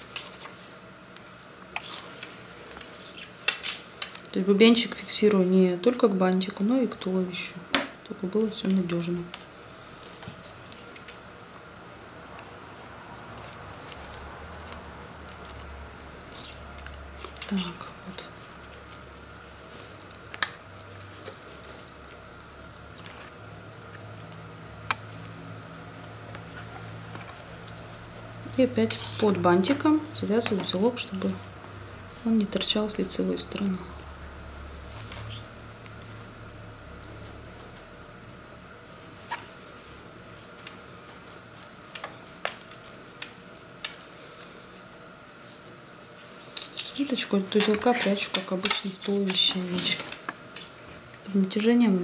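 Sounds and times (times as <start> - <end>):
steady low hum: 0.0 - 52.0
thread and fabric handling: 11.9 - 31.5.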